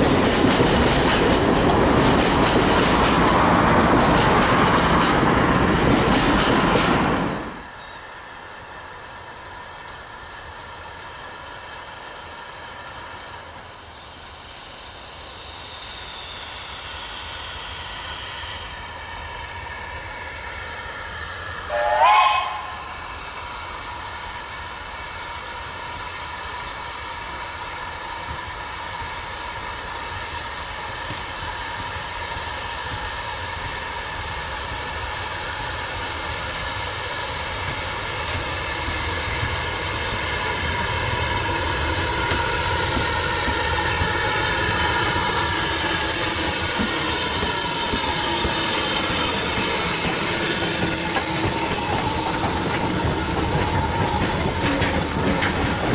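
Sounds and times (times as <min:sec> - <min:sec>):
steam hissing: 0:00.0 - 0:55.9
steam locomotive approaching: 0:00.0 - 0:55.9
steam locomotive whistle: 0:21.7 - 0:23.2.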